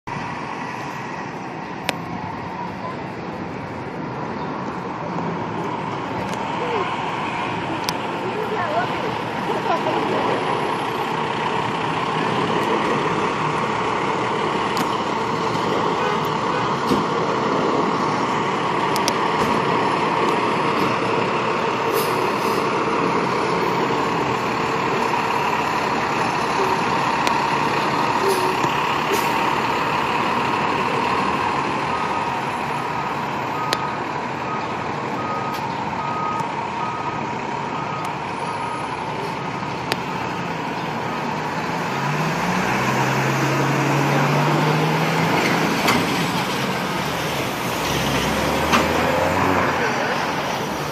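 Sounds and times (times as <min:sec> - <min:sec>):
fire engine diesel running: 0:00.0 - 0:50.9
reversing alarm beeps: 0:31.9 - 0:32.3, 0:32.9 - 0:38.9.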